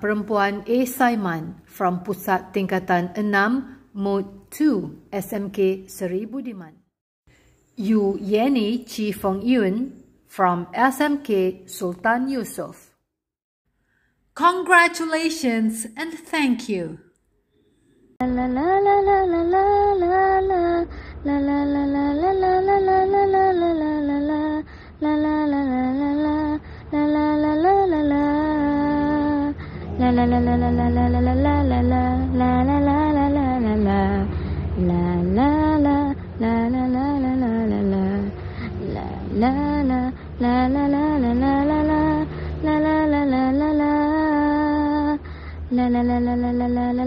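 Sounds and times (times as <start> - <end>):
woman singing wordless melody: 0.0 - 6.7, 7.8 - 12.8, 18.2 - 47.0
faint low hum: 17.5 - 47.0
steady low drone: 18.2 - 47.0.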